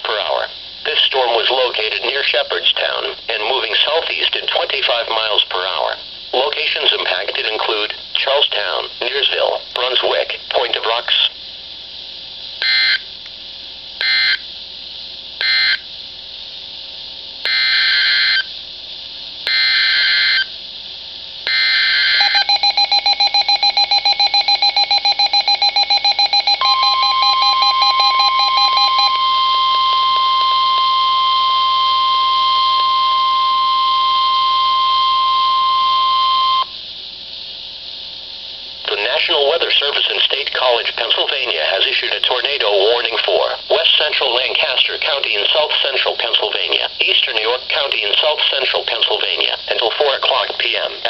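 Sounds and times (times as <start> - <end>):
steady warning alarm tone: 12.6 - 13.1, 14.0 - 14.5, 15.4 - 15.8, 17.5 - 18.5, 19.5 - 20.5, 21.5 - 36.8
data bursts: 21.5 - 36.7
weather radio beeping rapidly: 22.0 - 36.6.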